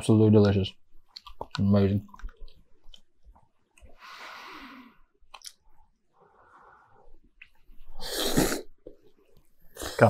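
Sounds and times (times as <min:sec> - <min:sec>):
loud noodle slurp: 0:08.0 - 0:08.7
person blowing on food: 0:08.0 - 0:08.8.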